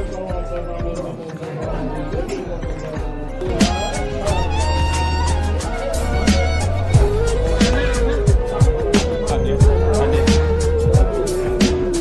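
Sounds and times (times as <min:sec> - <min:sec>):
deep bass: 0:03.0 - 0:12.0
melody with sliding notes: 0:03.2 - 0:12.0.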